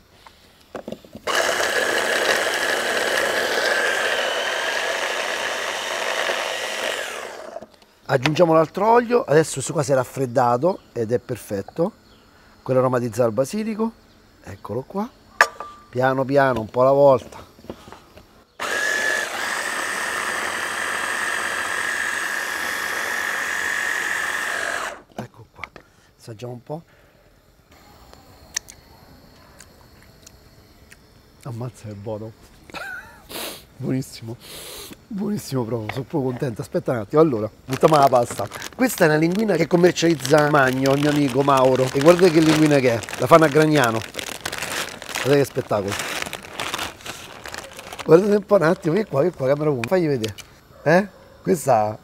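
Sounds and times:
mini chopper motor whining: 1.3 - 7.8, 18.6 - 25.1, 37.7 - 48.4.

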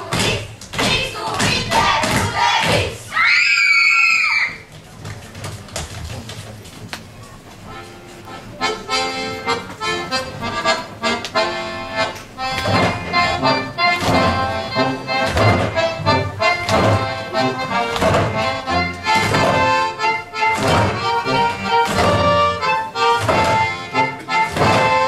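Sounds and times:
accordion folk dance music: 0.0 - 3.1, 7.4 - 25.0
dancers' shoes stamping: 0.1 - 3.0, 4.0 - 7.9, 12.4 - 25.0
loud high-pitched shout: 3.0 - 4.7
scattered steps and knocks: 4.6 - 25.0.

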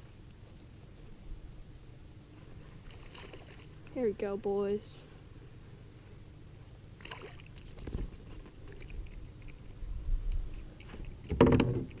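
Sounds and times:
light water splashing: 2.4 - 4.0, 7.0 - 12.0.

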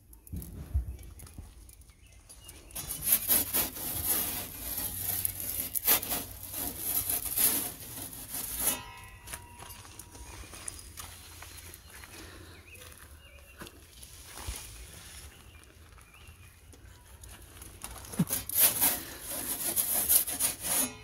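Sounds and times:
metal peel scraping on stone: 2.7 - 10.3, 18.1 - 21.0.

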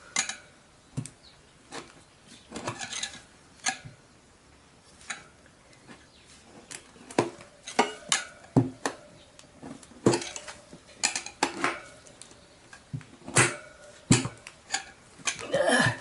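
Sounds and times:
tire levers clanking on metal rim: 2.5 - 4.0, 7.0 - 16.0.

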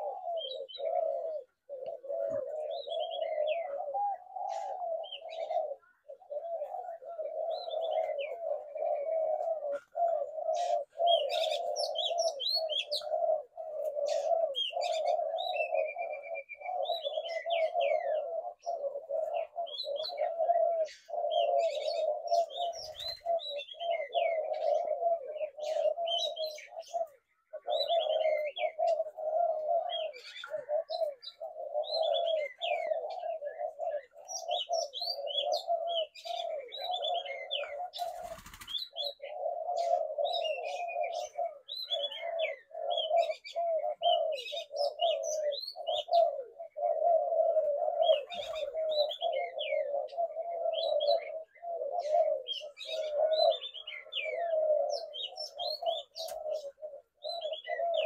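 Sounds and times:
doves cooing: 0.0 - 58.0
small birds chirping: 0.0 - 58.0.

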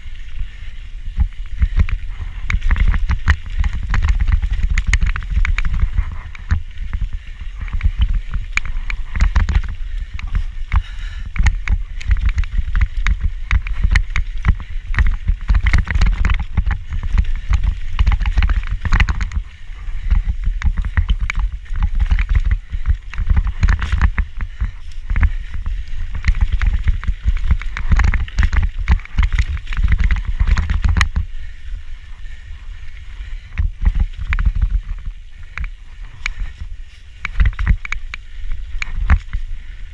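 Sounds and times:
tyres rumbling on dirt: 0.0 - 39.9
wind on microphone: 0.0 - 39.9
camera rattling in mount: 2.5 - 7.0, 26.0 - 31.2.

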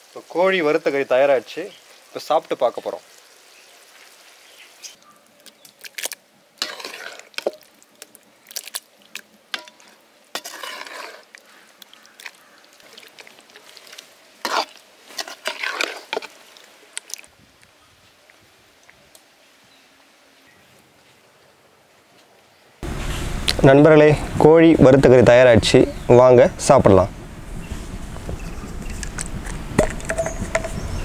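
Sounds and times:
wet gravy sounds: 0.0 - 17.3
ladle scraping metal pot: 6.6 - 7.7, 9.6 - 11.4, 13.0 - 16.4.

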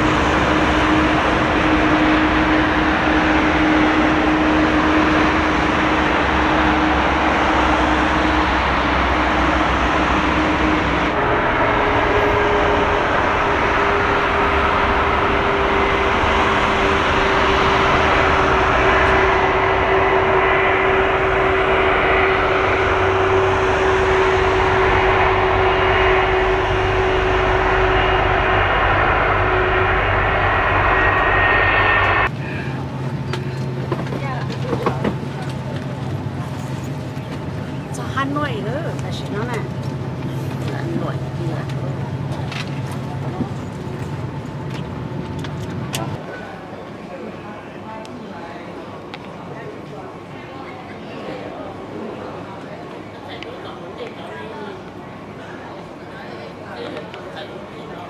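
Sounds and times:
rushing air: 0.0 - 32.8
steady hum: 0.0 - 33.0
airliner engine drone: 0.0 - 58.0.

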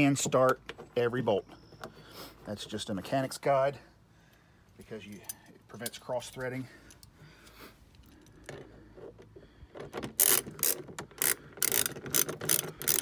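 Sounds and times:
ratchet wrench clicking: 10.2 - 13.0.

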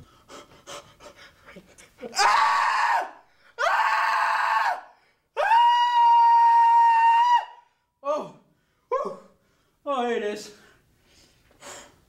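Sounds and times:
man screaming: 2.2 - 8.4.

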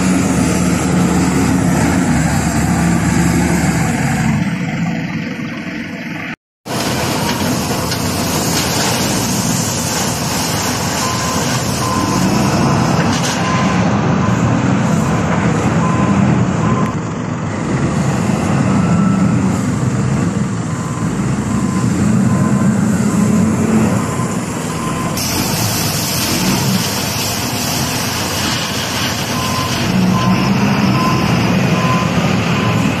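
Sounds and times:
diesel engine under load: 0.0 - 33.0
reversing alarm beeping: 10.8 - 12.8, 13.4 - 17.1, 18.4 - 25.9, 29.2 - 33.0.

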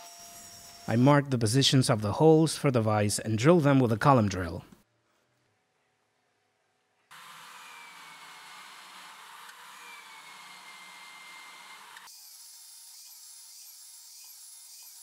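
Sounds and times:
electric drill boring wood: 0.0 - 0.9, 7.1 - 15.0.

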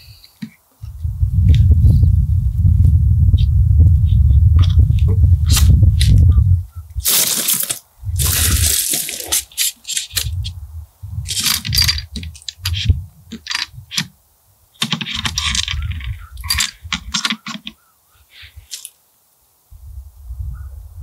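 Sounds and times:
metal cartridges clinking: 7.1 - 10.4, 11.3 - 14.1, 14.8 - 17.8, 18.7 - 18.9.

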